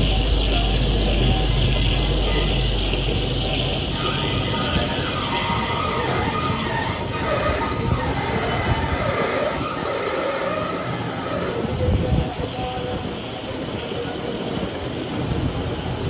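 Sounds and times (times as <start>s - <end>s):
lathe running: 0.0s - 11.8s
wavering metallic whine: 0.0s - 12.9s.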